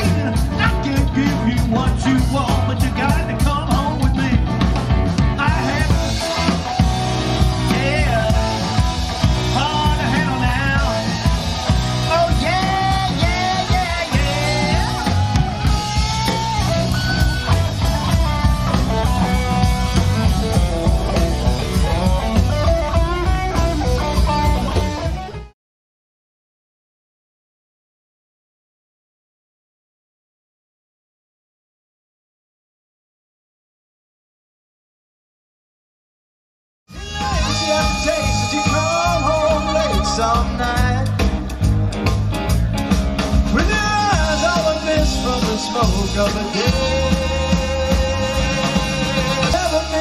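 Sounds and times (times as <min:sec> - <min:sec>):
live rock band: 0:00.0 - 0:25.6, 0:36.9 - 0:50.0
person singing: 0:05.3 - 0:24.2, 0:36.9 - 0:41.3, 0:43.5 - 0:50.0.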